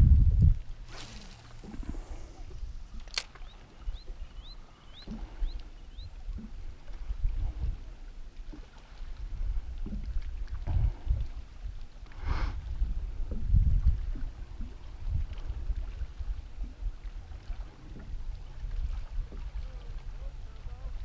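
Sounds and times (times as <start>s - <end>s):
wind on microphone: 0.0s - 21.0s
water lapping against boat: 0.7s - 21.0s
sharp click: 0.9s - 3.5s.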